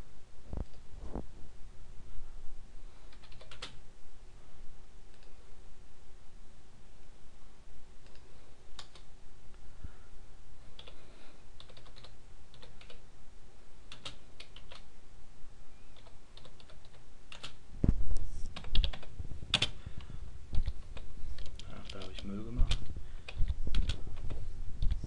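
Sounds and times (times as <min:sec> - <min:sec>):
computer keyboard typing: 0:03.1 - 0:03.8, 0:08.0 - 0:09.1, 0:10.7 - 0:11.0, 0:11.6 - 0:13.0, 0:13.9 - 0:14.9, 0:16.0 - 0:17.6, 0:18.6 - 0:19.8, 0:20.5 - 0:25.0.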